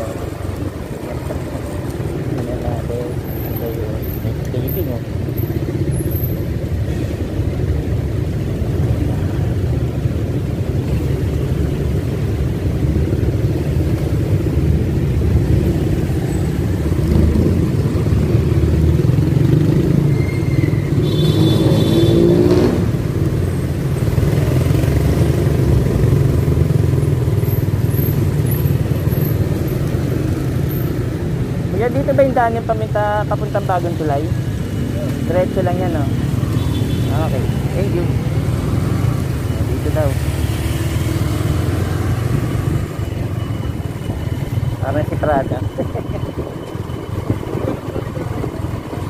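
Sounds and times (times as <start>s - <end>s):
city traffic: 0.0s - 49.0s
engine revving: 20.9s - 23.2s, 37.1s - 43.1s
motorcycle engine rumble: 22.8s - 49.0s.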